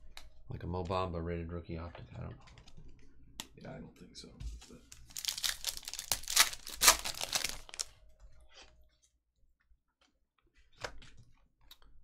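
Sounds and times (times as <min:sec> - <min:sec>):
wrapper tearing and crinkling: 0:04.9 - 0:07.9.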